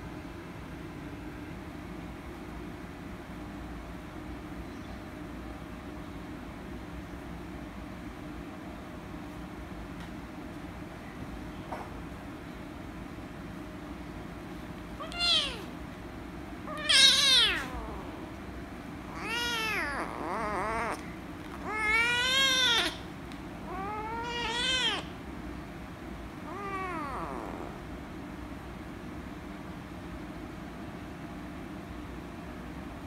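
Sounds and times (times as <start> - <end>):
kitten meowing loudly: 15.0 - 15.7, 16.7 - 18.2, 19.1 - 21.0, 21.6 - 23.0, 23.7 - 25.1.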